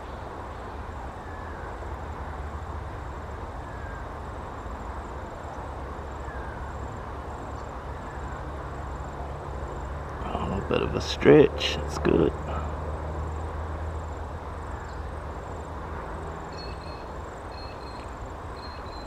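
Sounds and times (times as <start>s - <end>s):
faint high chirps: 16.5s - 19.0s.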